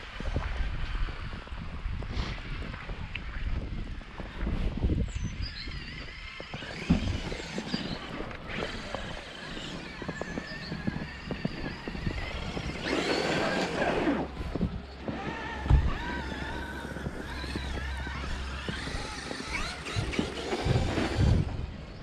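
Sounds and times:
electric motor whine: 5.8 - 22.0.

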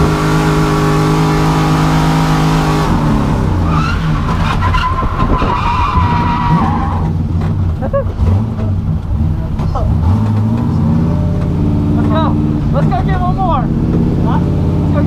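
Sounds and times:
car engine at high revs: 0.0 - 15.0
tyre squeal: 3.6 - 7.2.

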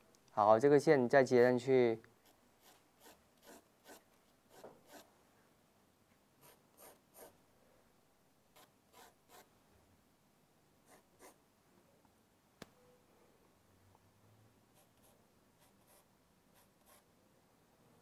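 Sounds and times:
pencil strokes on paper: 14.7 - 17.1.

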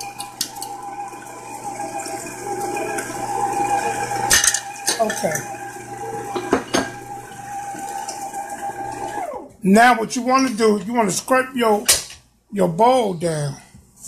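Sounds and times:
stand mixer running: 0.0 - 9.6.

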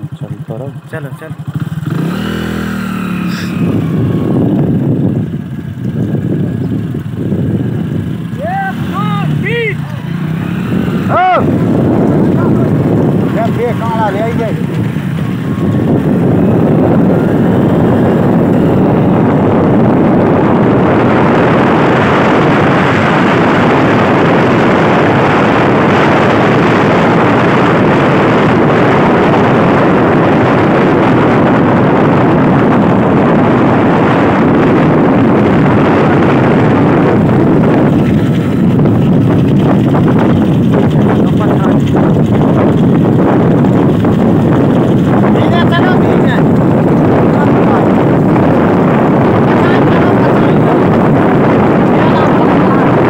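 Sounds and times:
vehicle engine running: 0.0 - 53.0
wind and road noise: 0.0 - 53.0.

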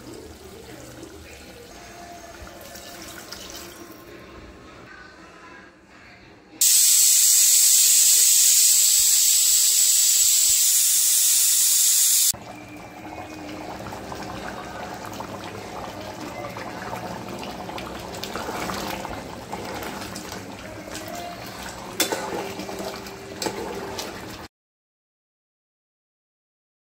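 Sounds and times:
loud steady hiss: 6.6 - 12.3
curry bubbling in a pot: 12.4 - 24.5
spoon stirring and clinking pot: 22.0 - 24.1.

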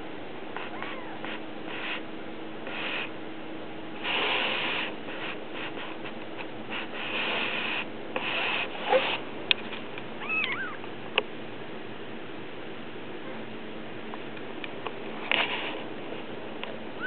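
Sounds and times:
kitten mew: 0.7 - 1.2.

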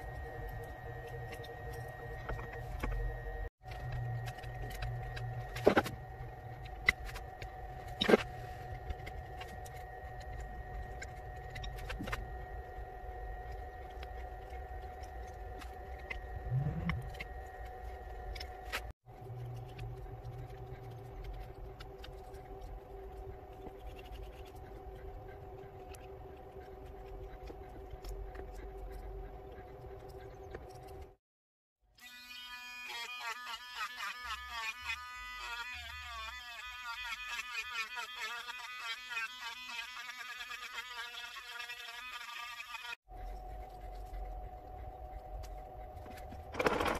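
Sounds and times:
steady background hum: 0.0 - 31.2, 43.1 - 46.9.

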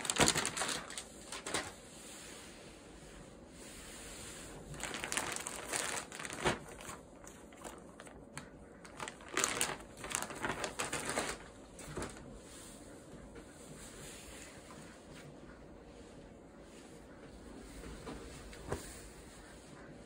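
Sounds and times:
plastic bag crinkling: 0.0 - 1.8, 4.7 - 12.3.

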